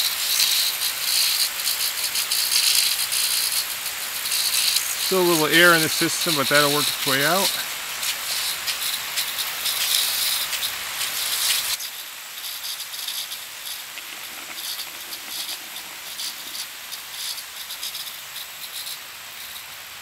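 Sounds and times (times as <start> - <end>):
droplets pattering on plastic and leaves: 0.0 - 20.0
sprinklers hissing: 0.0 - 20.0
air in supply line: 3.8 - 8.8.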